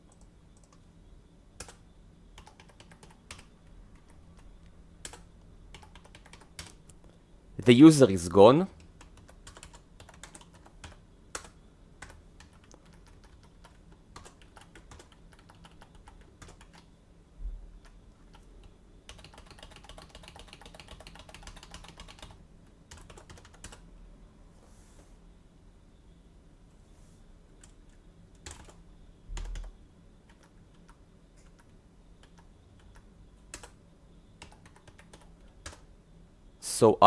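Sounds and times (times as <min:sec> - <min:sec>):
keyboard typing: 0:00.0 - 0:00.9, 0:01.6 - 0:01.8, 0:02.4 - 0:07.2, 0:08.8 - 0:16.9, 0:17.7 - 0:23.8, 0:27.6 - 0:33.8, 0:34.4 - 0:35.9.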